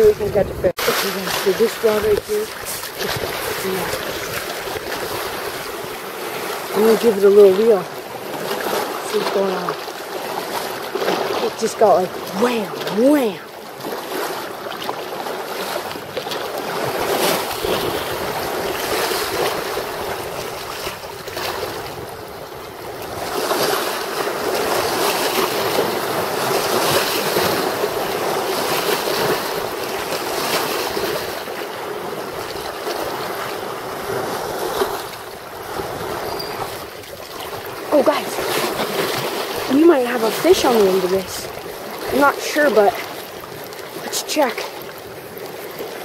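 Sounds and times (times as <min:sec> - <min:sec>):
wind on microphone: 0:00.0 - 0:09.7, 0:15.9 - 0:31.4
waves washing against shore: 0:00.0 - 0:46.0.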